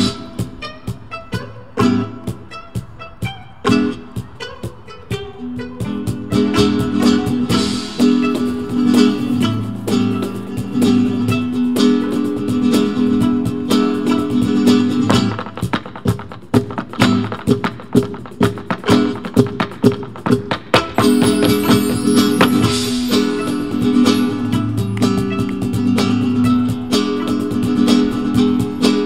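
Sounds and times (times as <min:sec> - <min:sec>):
acoustic guitar: 0:00.0 - 0:29.0
sharp percussive strikes: 0:15.2 - 0:29.0
sustained melody line: 0:21.0 - 0:26.9.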